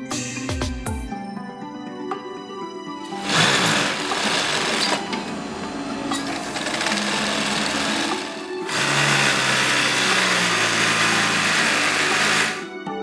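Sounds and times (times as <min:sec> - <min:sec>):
background music: 0:00.0 - 0:13.0
sewing machine running: 0:03.1 - 0:12.7.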